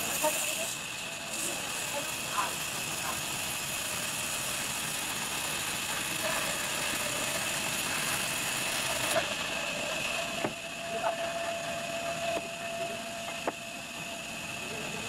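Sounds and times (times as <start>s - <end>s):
band saw cutting log: 0.0s - 10.6s.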